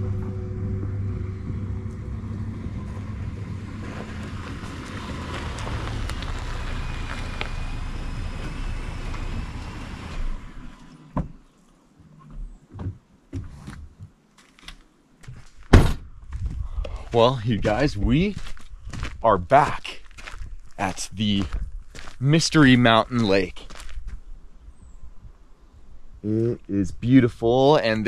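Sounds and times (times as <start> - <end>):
pickup truck driving on dirt: 0.0 - 11.4.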